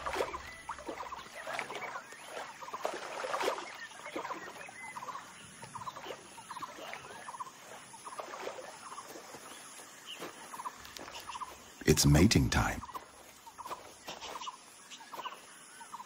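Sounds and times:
soft water splash: 0.0 - 9.6
small animals chirping and trilling: 0.0 - 12.2, 12.8 - 16.0.

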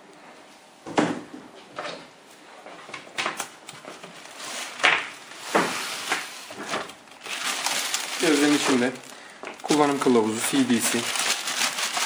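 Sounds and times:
styrofoam and plastic bag rustling: 3.9 - 12.0.

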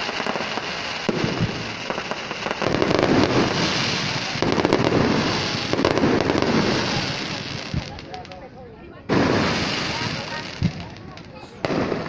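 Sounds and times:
fireworks crackling and popping: 0.0 - 12.0.

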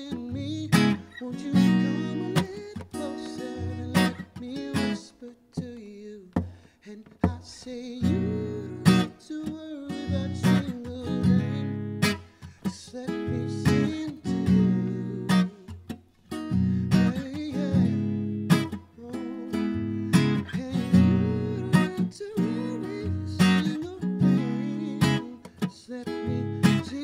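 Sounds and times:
acoustic guitar strumming: 0.0 - 27.0.

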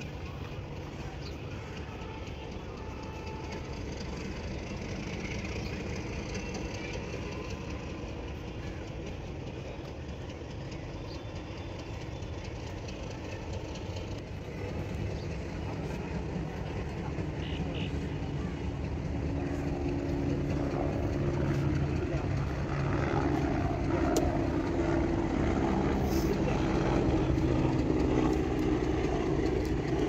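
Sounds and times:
low mechanical drone: 0.0 - 30.0.

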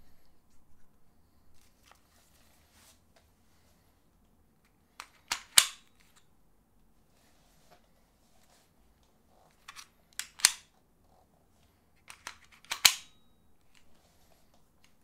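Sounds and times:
pistol holster clicking: 5.0 - 5.8, 9.7 - 10.7, 12.1 - 13.1.

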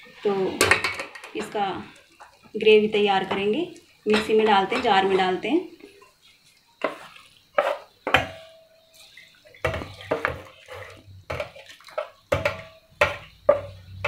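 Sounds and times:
wet splashing: 6.2 - 7.6, 8.9 - 13.9.

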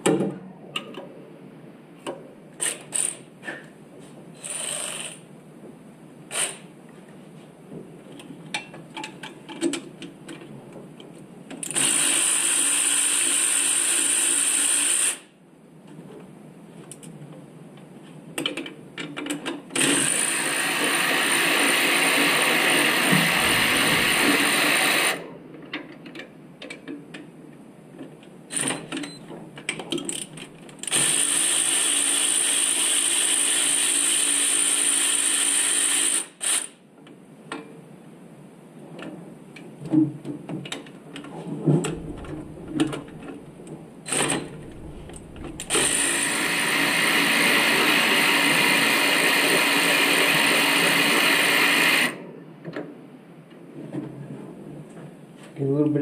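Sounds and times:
clicks and knocks of tools: 8.1 - 11.8, 15.9 - 19.6, 25.6 - 27.3, 37.0 - 37.8.

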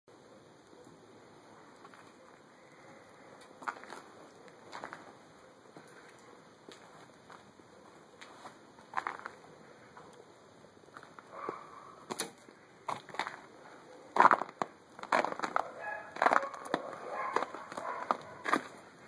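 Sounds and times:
footsteps crunching on snow: 3.6 - 5.2, 5.8 - 9.4, 12.9 - 13.5, 14.2 - 18.9.

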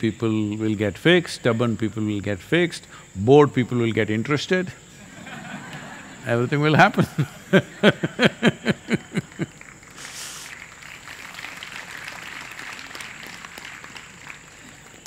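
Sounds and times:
man laughing: 5.0 - 9.6.

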